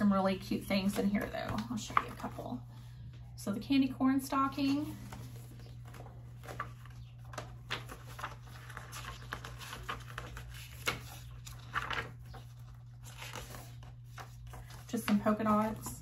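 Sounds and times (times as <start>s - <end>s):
paper pages rustling: 0.8s - 2.5s, 4.6s - 16.0s.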